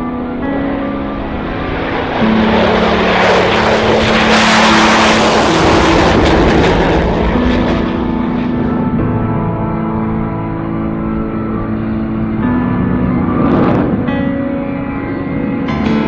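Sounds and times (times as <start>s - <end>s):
background music sustained notes: 0.0s - 16.0s
jet taking off: 0.0s - 16.0s.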